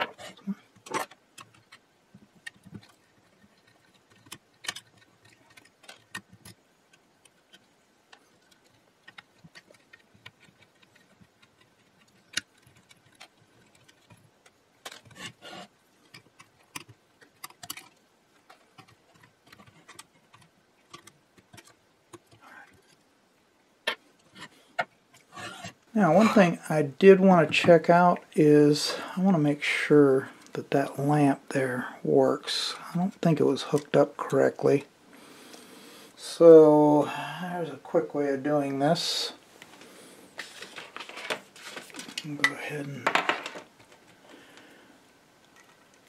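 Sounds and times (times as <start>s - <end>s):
small metal clicks and taps: 2.4s - 15.4s.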